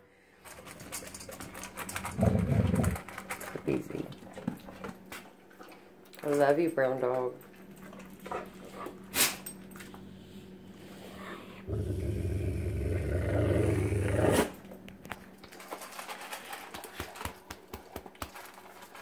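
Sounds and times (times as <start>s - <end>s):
dog eating kibble clicks: 0.4s - 6.4s, 14.9s - 19.0s
dog growling low: 2.0s - 3.1s, 10.1s - 14.6s.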